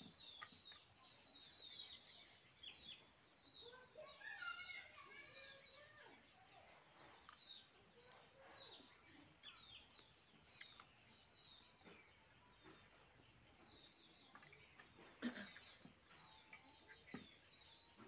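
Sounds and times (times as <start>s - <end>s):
faint small birds chirping: 0.0s - 18.0s.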